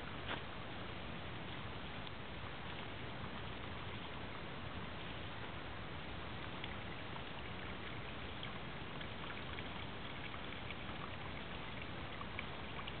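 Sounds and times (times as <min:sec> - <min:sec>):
stream running over its bed: 0:00.0 - 0:13.0
faint ticks: 0:01.5 - 0:02.9.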